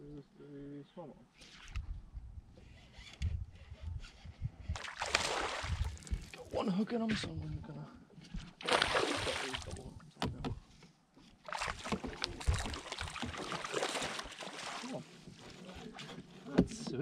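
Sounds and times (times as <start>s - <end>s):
fish splashing at surface: 4.8s - 6.3s, 8.6s - 9.8s, 11.5s - 15.0s.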